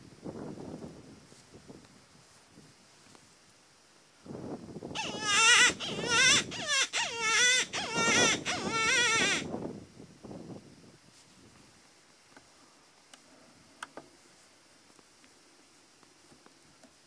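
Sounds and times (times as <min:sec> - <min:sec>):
predator call wailing cry: 0:05.0 - 0:09.5.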